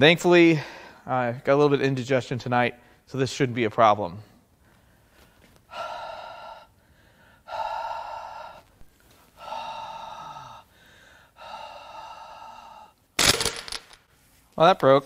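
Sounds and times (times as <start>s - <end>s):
man blowing breaths: 4.7s - 13.0s.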